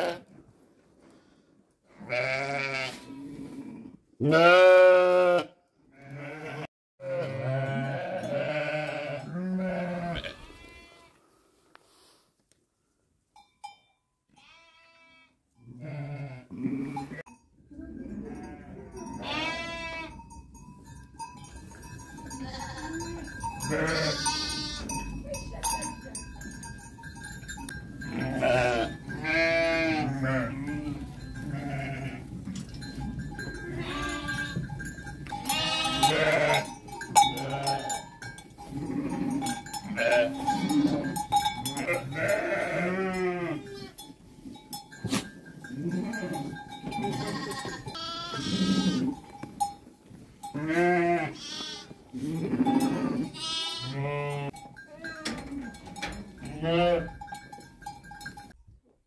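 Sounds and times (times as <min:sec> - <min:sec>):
sheep and lambs bleating: 0:00.0 - 0:00.3, 0:01.9 - 0:11.2, 0:14.3 - 0:20.2, 0:22.3 - 0:25.0, 0:28.0 - 0:32.6, 0:33.5 - 0:38.0, 0:38.6 - 0:44.1, 0:45.1 - 0:49.3, 0:50.4 - 0:55.8, 0:56.4 - 0:57.2.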